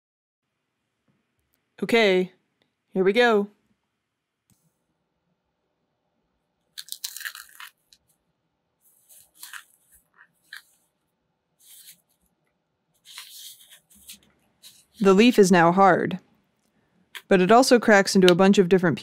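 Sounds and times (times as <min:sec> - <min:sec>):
frozen leaf crunching and crackling: 0:06.8 - 0:07.9, 0:09.0 - 0:09.8.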